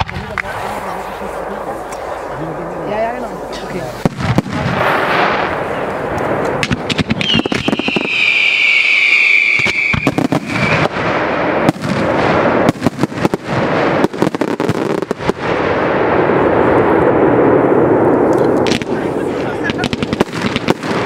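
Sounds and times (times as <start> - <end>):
firework bangs and pops: 0.0 - 2.3, 4.0 - 21.0
shrill firework whistle: 7.2 - 11.0.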